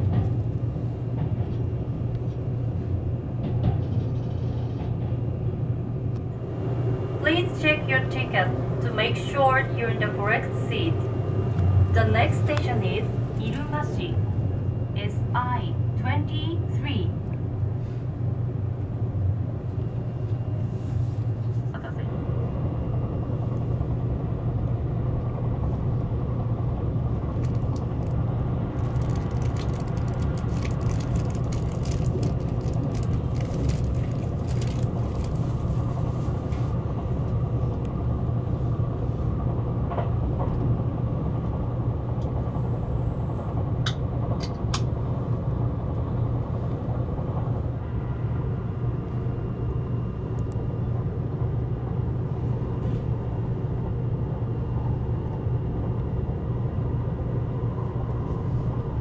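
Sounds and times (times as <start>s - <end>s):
train rumble inside cabin: 0.0s - 59.0s.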